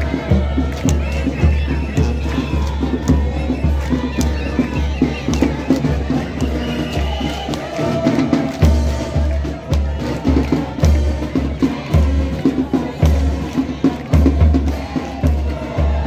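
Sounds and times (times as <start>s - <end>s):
deep drum beat: 0.0s - 16.0s.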